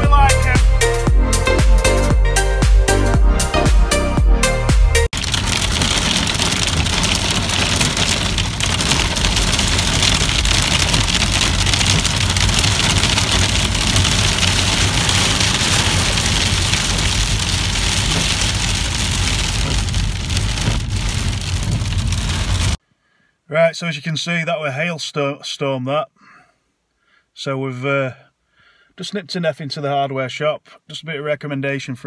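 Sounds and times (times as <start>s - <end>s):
car rumble: 5.0s - 22.8s
hail drumming on car roof: 5.1s - 22.8s.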